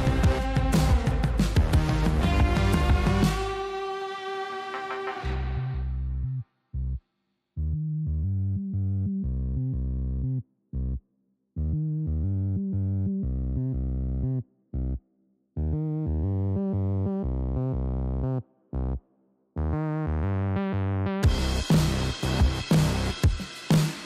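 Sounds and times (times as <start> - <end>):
synthesizer chords: 0.0 - 3.9, 19.6 - 24.0.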